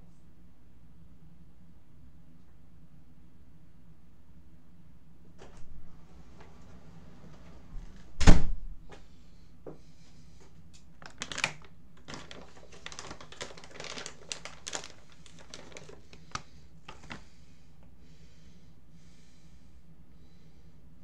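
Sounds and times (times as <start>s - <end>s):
rustling of handled objects: 10.8s - 17.4s.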